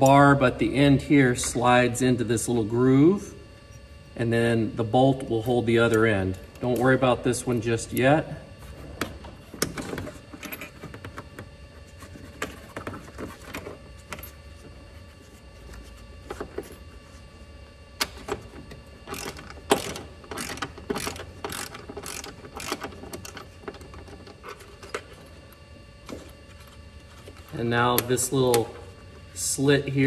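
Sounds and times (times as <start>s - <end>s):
ratcheting wrench clicking: 19.1s - 23.4s.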